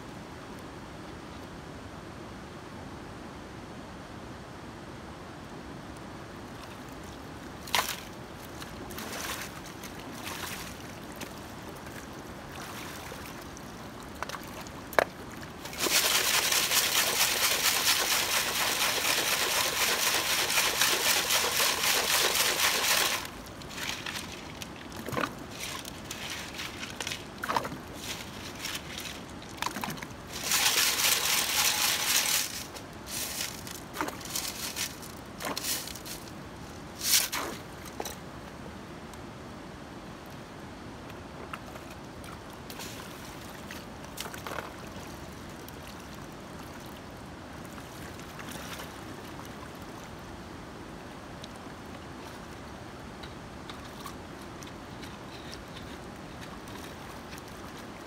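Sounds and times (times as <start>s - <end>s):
low river hiss: 0.0s - 58.0s
water and gravel sloshing: 6.5s - 38.2s, 41.4s - 50.3s, 53.6s - 58.0s.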